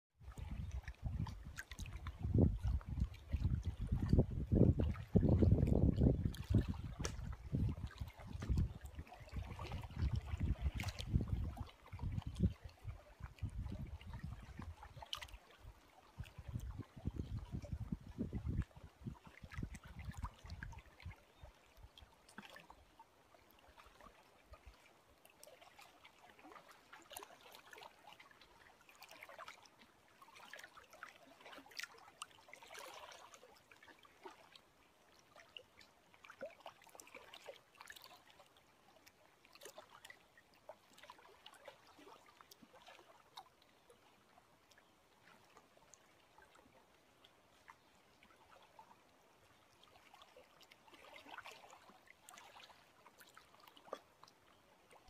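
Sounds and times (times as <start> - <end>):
small water splashes and trickles: 0.1 - 55.0
lake water lapping: 0.2 - 55.0.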